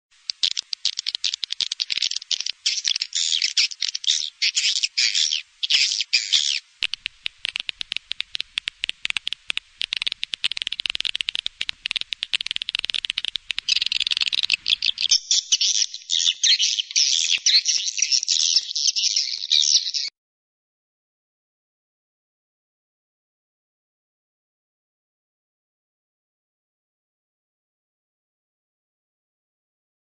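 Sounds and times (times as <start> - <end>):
high-pitched twittering chirps: 0.2 - 7.9, 9.8 - 20.1
sharp bird clicks: 0.2 - 20.1.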